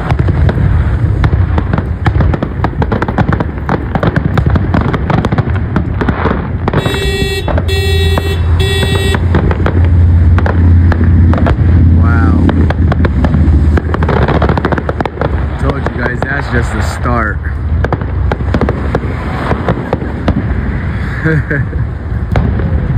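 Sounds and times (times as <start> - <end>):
fireworks bursting and crackling: 0.0 - 22.9
horn blasts: 6.8 - 9.4.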